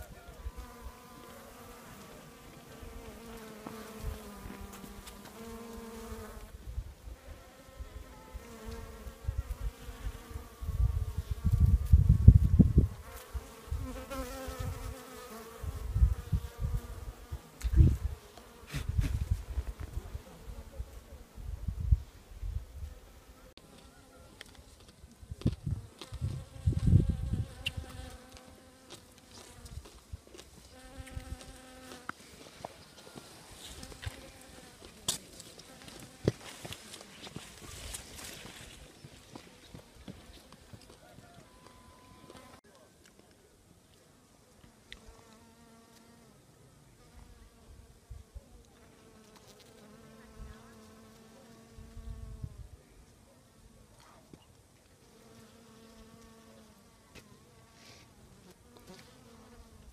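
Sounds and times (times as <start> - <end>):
bee buzzing: 0.4 - 21.9, 25.6 - 30.0, 30.6 - 32.2, 33.0 - 37.0, 44.8 - 46.4, 47.0 - 52.6, 55.0 - 59.9.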